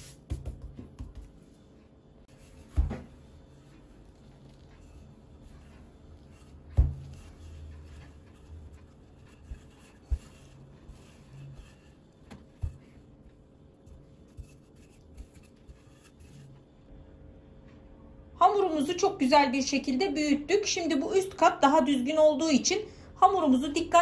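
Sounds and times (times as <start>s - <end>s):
rolling pin rolling dough: 0.0s - 16.7s
rolling pin knocking on table: 0.3s - 1.4s.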